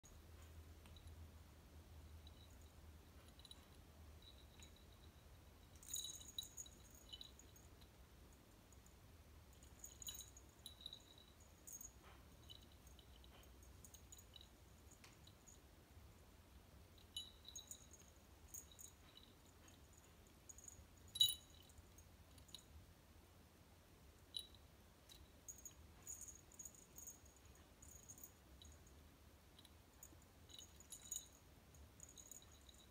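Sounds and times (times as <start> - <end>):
faint low hum: 0.0 - 32.9
cat collar bell tinkling: 0.1 - 16.0, 16.8 - 22.9, 24.1 - 32.9
small metallic jingles: 0.1 - 16.2, 16.8 - 22.8, 24.2 - 32.9
sharp ringing clink: 2.1 - 7.7, 9.6 - 15.6, 17.0 - 22.7, 29.6 - 32.9.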